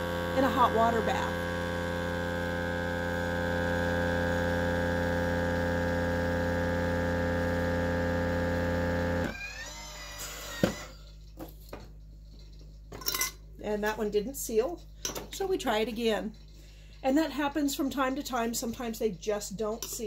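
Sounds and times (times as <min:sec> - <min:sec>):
vacuum pump humming: 0:00.0 - 0:10.8.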